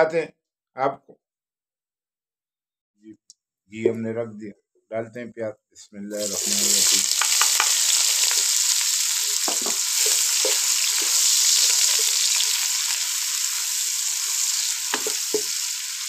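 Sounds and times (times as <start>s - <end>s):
onions sizzling in pan: 6.2s - 16.0s
spatula knocking against pan: 7.2s - 7.8s.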